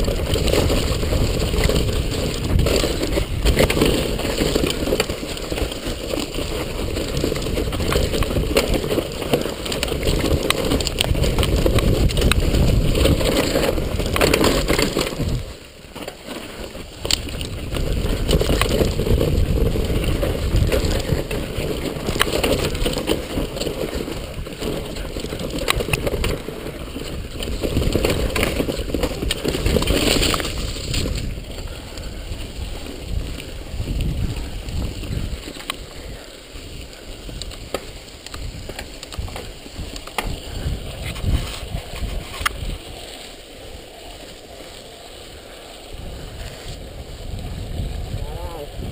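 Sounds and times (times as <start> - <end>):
mountain bike rattling over trail: 0.0 - 48.9.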